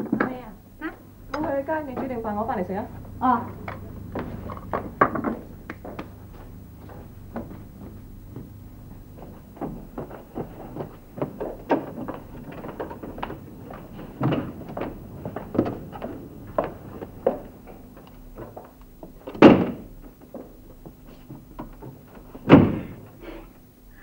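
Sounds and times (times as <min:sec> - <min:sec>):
loud door thuds: 0:19.3 - 0:19.9, 0:22.4 - 0:23.0.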